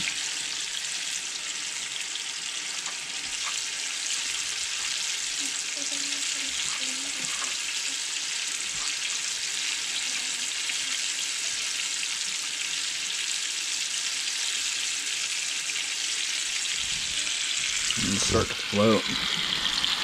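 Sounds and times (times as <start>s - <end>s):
fish sizzling in hot oil: 0.0s - 20.0s.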